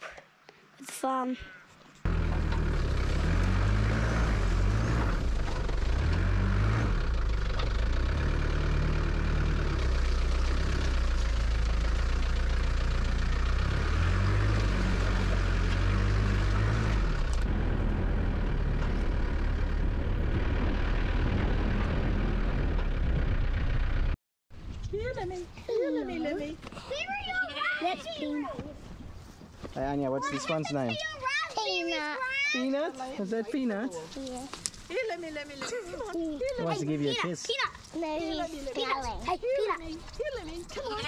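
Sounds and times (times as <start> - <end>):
vehicle engine while driving: 2.0 - 24.2.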